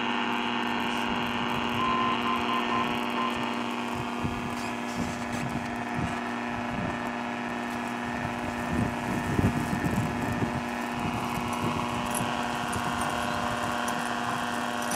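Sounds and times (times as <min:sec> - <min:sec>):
steady hum of fixed tones: 0:00.0 - 0:14.9.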